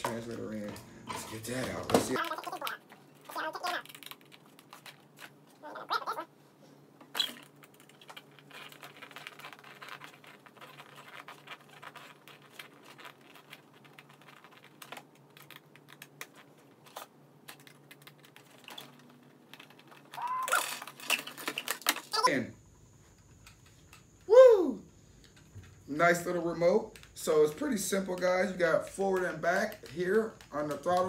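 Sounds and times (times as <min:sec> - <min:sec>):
faint scratching: 0:08.1 - 0:19.0.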